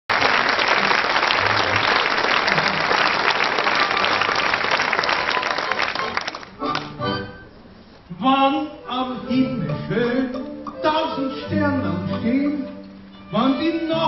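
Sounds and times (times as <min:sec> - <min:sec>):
audience applauding: 0:00.1 - 0:06.9.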